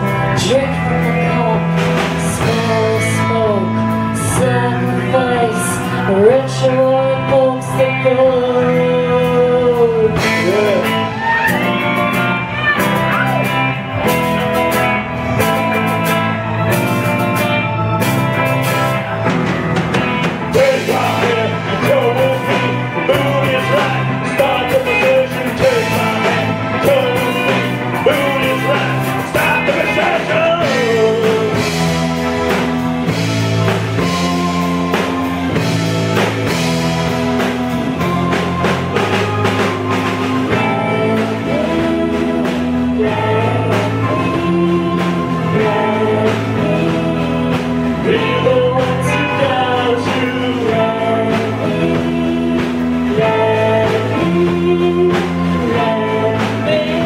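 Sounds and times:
woman singing: 0.0s - 13.5s, 39.8s - 57.0s
bass guitar: 0.0s - 57.0s
distorted electric guitar: 0.0s - 57.0s
drum kit: 0.0s - 57.0s.

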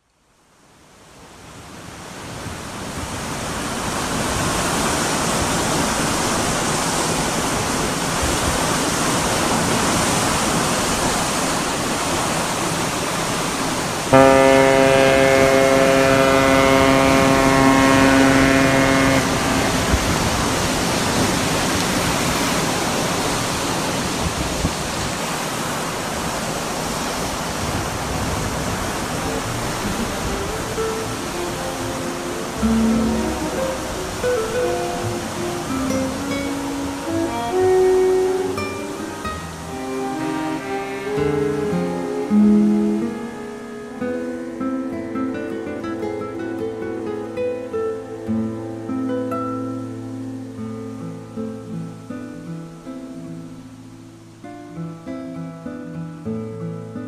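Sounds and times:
rushing water noise: 0.0s - 57.0s
ship's horn blast: 3.8s - 24.4s, 25.4s - 44.6s.

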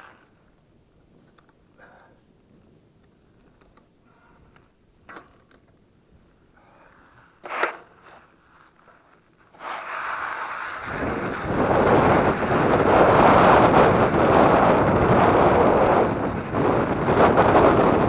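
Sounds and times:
tyres on gravel: 0.0s - 1.6s, 3.0s - 12.7s
faint clicks: 2.6s - 5.9s
wind on microphone: 10.6s - 18.0s.

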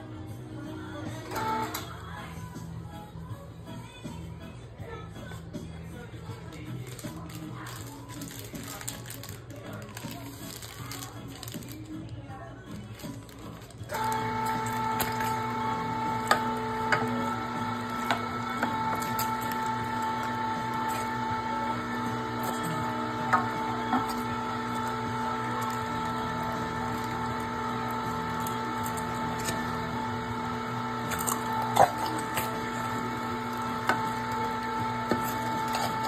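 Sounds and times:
plastic bag clicks and crinkles: 6.4s - 15.3s
electric meat grinder running: 13.9s - 36.0s.

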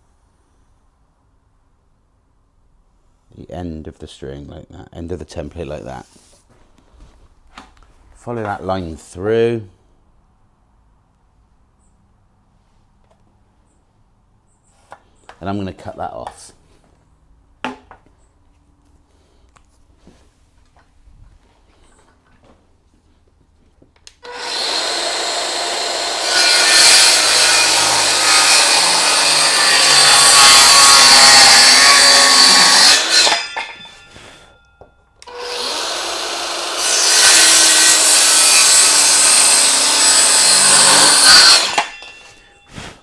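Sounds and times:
circular saw cutting wood: 24.2s - 34.5s, 35.2s - 43.0s.

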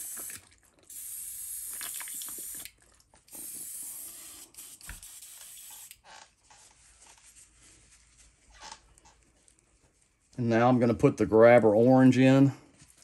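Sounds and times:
airbrush spraying hiss: 3.4s - 5.9s.

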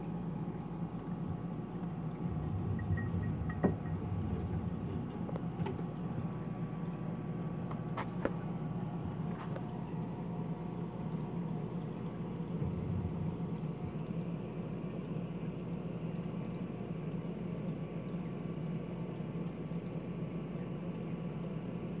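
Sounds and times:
air pump humming: 1.1s - 10.2s.

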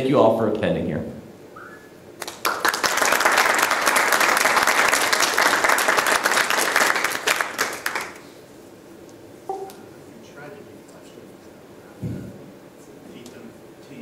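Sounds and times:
audience applauding: 2.2s - 8.3s.

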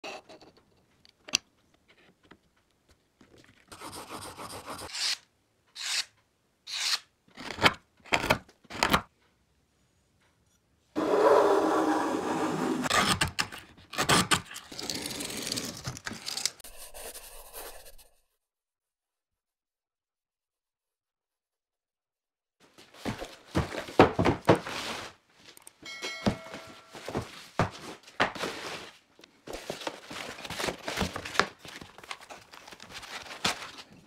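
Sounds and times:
hand tool scraping wood: 11.0s - 13.1s.

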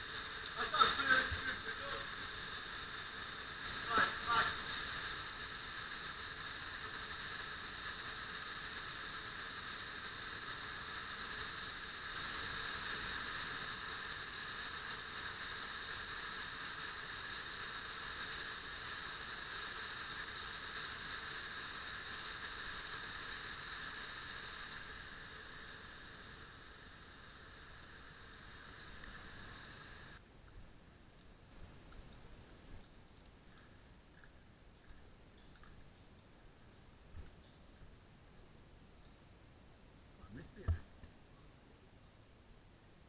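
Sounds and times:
running water rushing: 0.0s - 30.8s.

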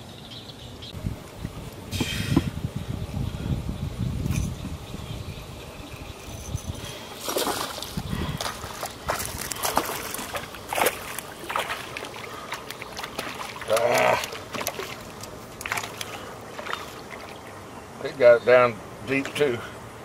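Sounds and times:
fish splashing in water: 7.2s - 17.6s.

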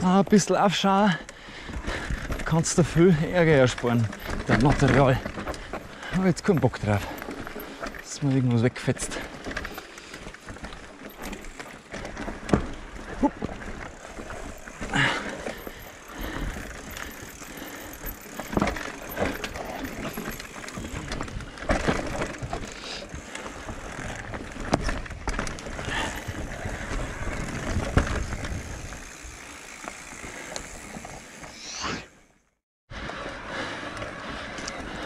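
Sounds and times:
bike knocking and rattling: 0.0s - 31.6s
bike tyres rolling on trail: 0.0s - 35.0s
short rising squeal: 31.5s - 32.2s.

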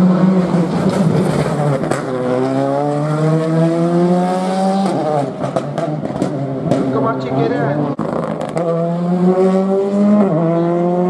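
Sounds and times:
rally car engine revving: 0.0s - 11.0s.

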